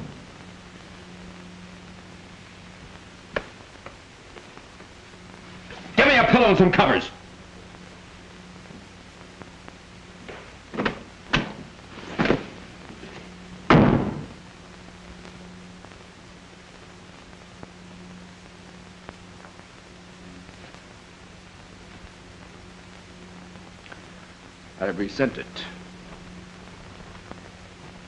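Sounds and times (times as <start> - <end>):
low steady hum: 0.0 - 28.0
door slamming: 13.7 - 14.3.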